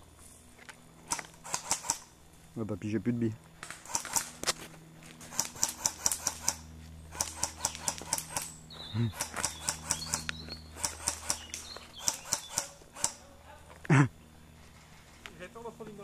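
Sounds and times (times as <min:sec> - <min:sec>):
airsoft gunfire bursts: 0:01.1 - 0:02.1, 0:03.8 - 0:04.3, 0:05.3 - 0:13.2.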